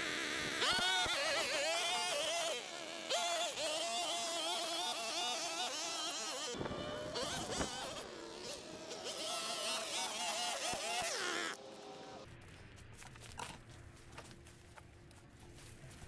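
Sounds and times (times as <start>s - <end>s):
small two-stroke engine revving: 0.0s - 12.2s.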